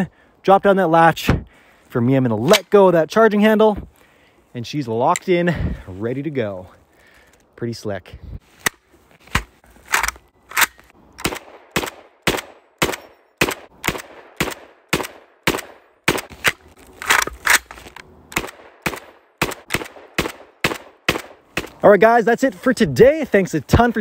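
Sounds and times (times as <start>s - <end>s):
rifle single shots: 9.3s - 17.7s, 18.3s - 21.8s.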